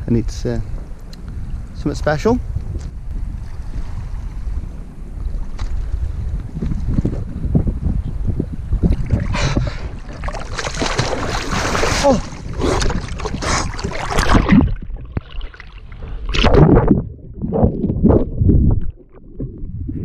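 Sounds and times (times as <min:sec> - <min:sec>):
water splashing and sloshing: 0:02.7 - 0:04.6, 0:05.2 - 0:07.2, 0:08.7 - 0:20.0
water surges: 0:08.9 - 0:19.6.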